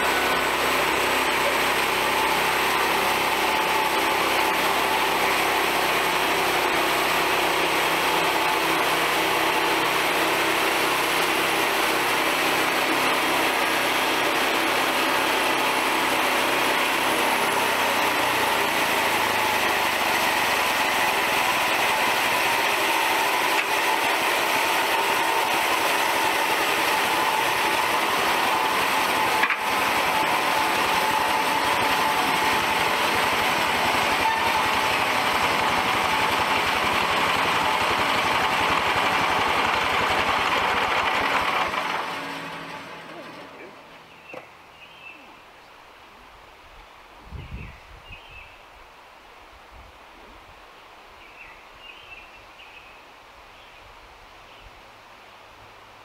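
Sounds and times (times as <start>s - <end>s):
small gasoline engine running: 0.0s - 44.4s.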